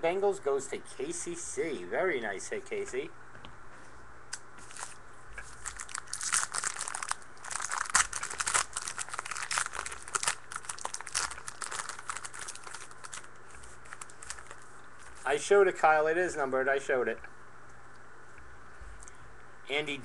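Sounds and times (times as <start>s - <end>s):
wrapper tearing and crinkling: 4.7s - 15.2s.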